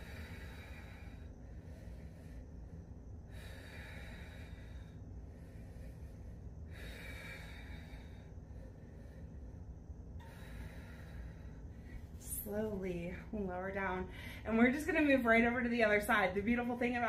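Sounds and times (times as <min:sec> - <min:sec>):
woman breathing slowly: 0:00.0 - 0:12.4, 0:14.0 - 0:14.6
low steady hum: 0:00.0 - 0:17.0.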